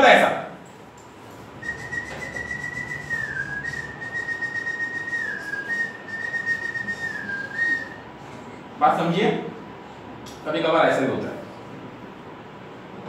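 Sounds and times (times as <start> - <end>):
man whistling high note: 1.6 - 8.1.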